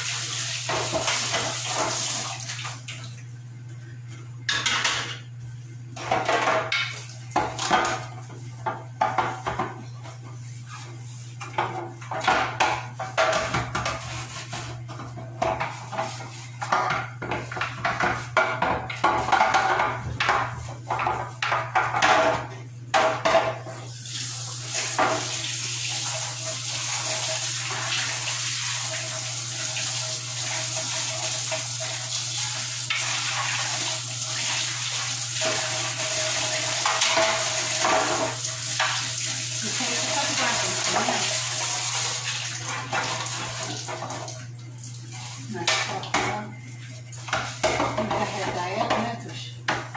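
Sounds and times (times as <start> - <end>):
tap water running: 0.0 - 5.3, 6.0 - 49.9
sponge scrubbing plastic: 7.8 - 12.0, 13.1 - 18.4, 39.2 - 42.1, 46.4 - 49.2.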